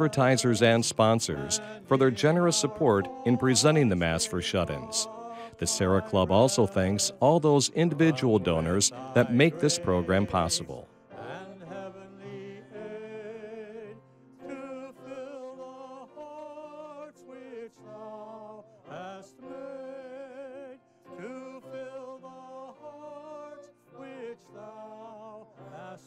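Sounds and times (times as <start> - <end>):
person singing with vibrato: 0.0 - 13.9.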